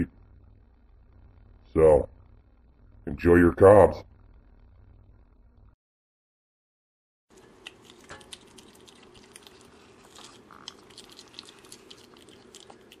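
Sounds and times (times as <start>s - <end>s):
animal gnawing corn cob: 7.3s - 13.0s.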